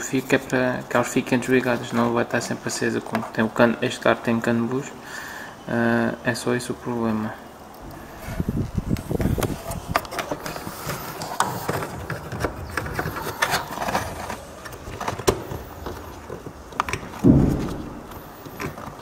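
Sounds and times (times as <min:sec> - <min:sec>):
handling noise on microphone: 0:08.0 - 0:19.0
dull thump: 0:17.2 - 0:18.4.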